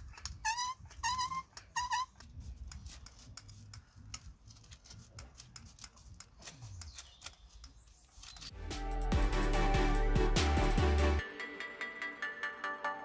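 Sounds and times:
grouting gun clicks and scrapes: 0.0s - 8.5s.

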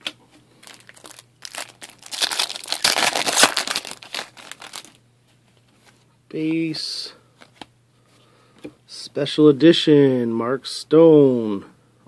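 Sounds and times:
foil wrapper crinkling: 0.6s - 5.0s.

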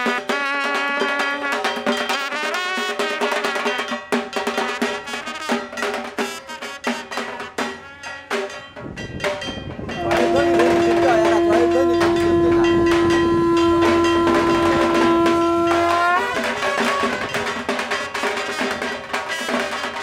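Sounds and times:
conch shell blown: 0.0s - 3.9s, 9.9s - 17.7s
drums beating: 0.0s - 20.0s.

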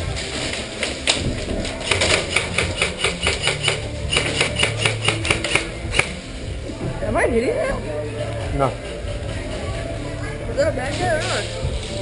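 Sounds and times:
airsoft rifle rapid clicking shots: 1.8s - 6.1s.

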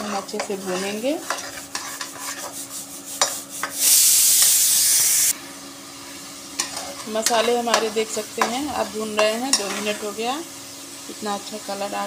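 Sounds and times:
metal spatula scraping paste: 0.0s - 3.8s
light frying sizzle: 0.0s - 12.0s
loud steady hiss: 3.6s - 5.4s.

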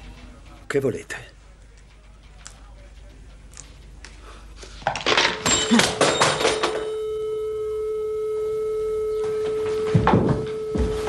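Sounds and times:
knocks and rustling: 9.8s - 11.0s.

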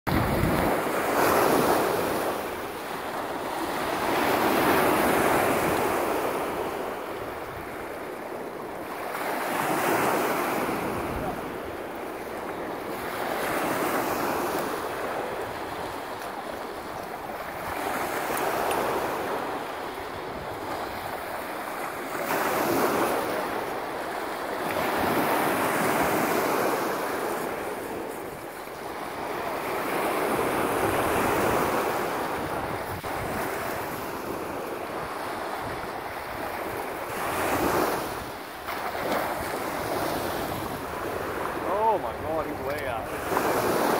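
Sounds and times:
wind on microphone: 0.1s - 2.9s, 25.8s - 43.9s
small waves washing ashore: 0.1s - 43.9s.

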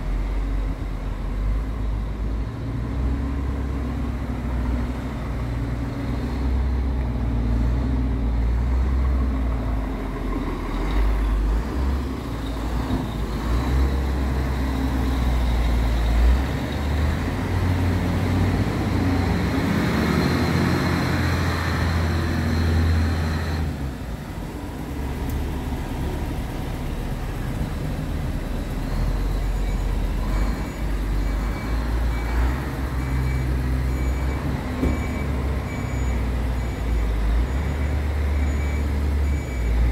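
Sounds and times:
truck diesel engine idling: 20.8s - 39.9s.

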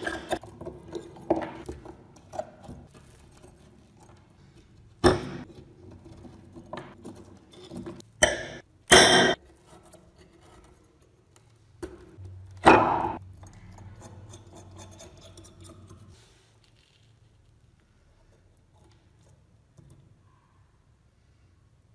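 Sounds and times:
metal pick scraping rusted scissors: 13.7s - 16.2s.

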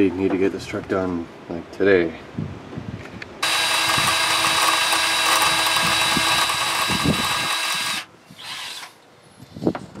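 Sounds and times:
power drill whining: 3.4s - 9.0s.

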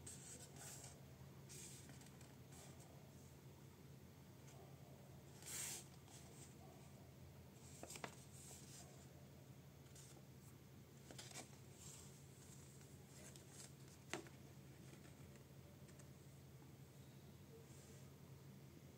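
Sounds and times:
paper rustling: 0.1s - 2.8s, 7.6s - 8.9s, 11.0s - 16.1s.

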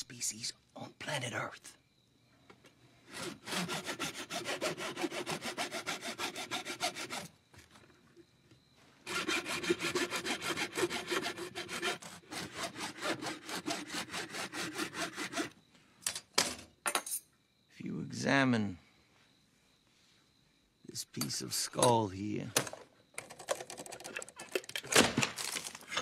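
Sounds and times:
hand saw cutting bone: 3.1s - 7.3s, 9.1s - 15.5s.

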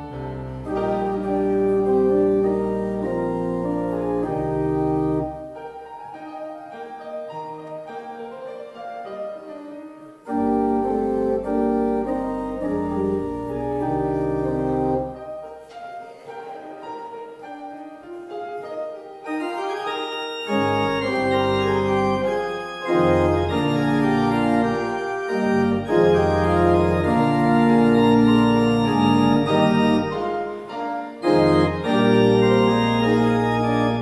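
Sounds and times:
organ chords: 0.0s - 6.1s, 9.4s - 15.8s, 18.2s - 34.0s.

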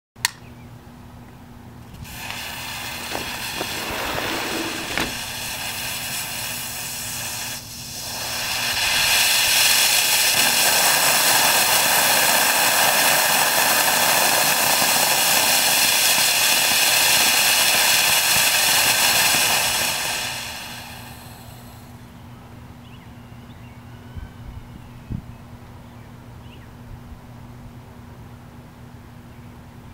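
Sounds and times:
fuse hissing and popping: 1.9s - 21.9s
rocket motor exhaust rushing hiss: 1.9s - 22.0s.

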